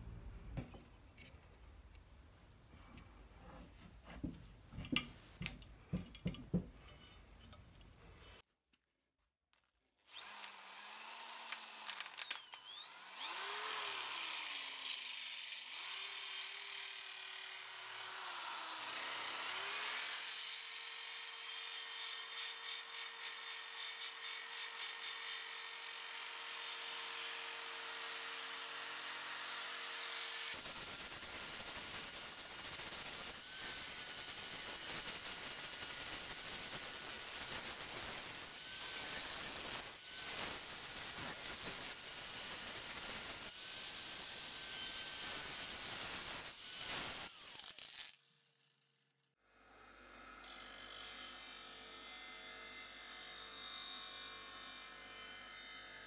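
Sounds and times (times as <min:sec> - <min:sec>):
drill grinding metal blade: 0:10.1 - 0:48.8, 0:50.4 - 0:56.0.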